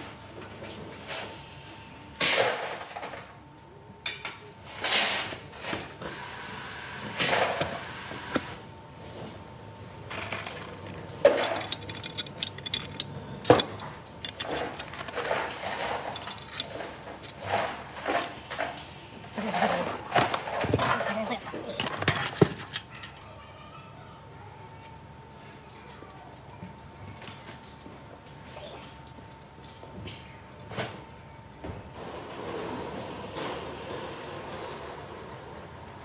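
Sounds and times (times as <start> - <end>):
metal parts clinking: 10.1 - 23.2.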